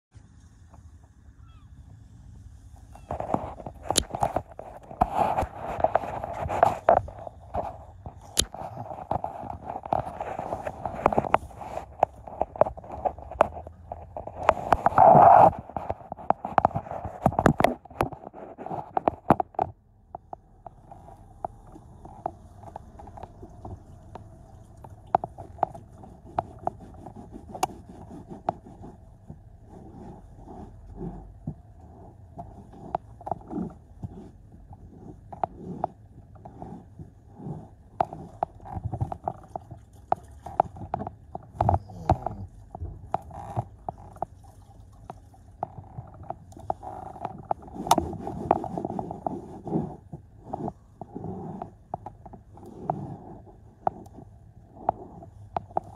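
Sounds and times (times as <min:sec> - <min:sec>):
faint steady hum: 0:00.1 - 0:55.9
sharp clicks and knocks: 0:02.8 - 0:29.4.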